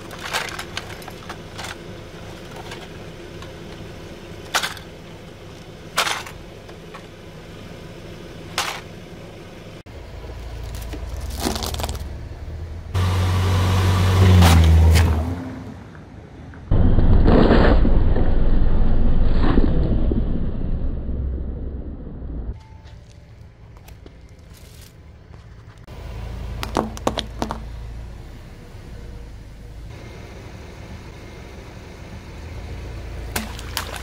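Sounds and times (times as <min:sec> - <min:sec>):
car engine revving: 0:12.5 - 0:15.8.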